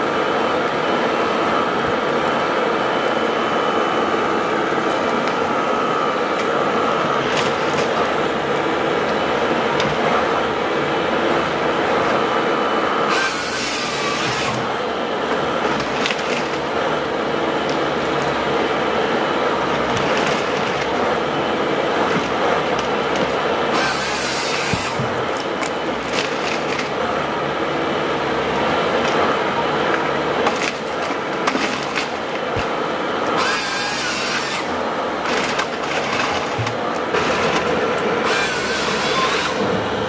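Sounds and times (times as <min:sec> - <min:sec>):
harvester engine and hydraulics running: 0:00.0 - 0:40.0
harsh sawing bursts: 0:13.0 - 0:14.8, 0:23.6 - 0:26.7, 0:33.2 - 0:34.9, 0:38.2 - 0:39.6.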